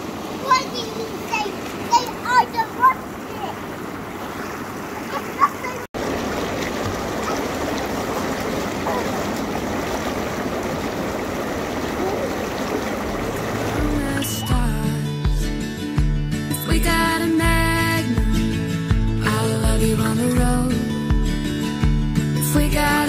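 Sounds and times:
hot tub bubbling water: 0.0 - 14.6
child's voice: 0.4 - 3.7, 5.0 - 5.9
music: 13.6 - 23.0.

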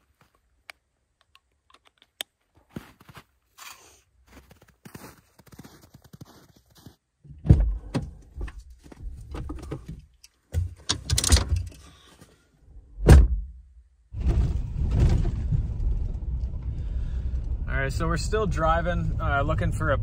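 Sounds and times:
truck low rumble: 14.1 - 20.0
gear knocking and thunking: 14.2 - 19.9.

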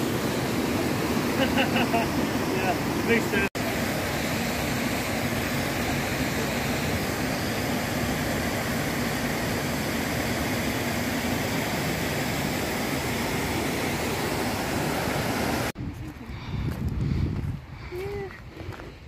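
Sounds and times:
creek water rushing over rapids: 10.8 - 15.7.

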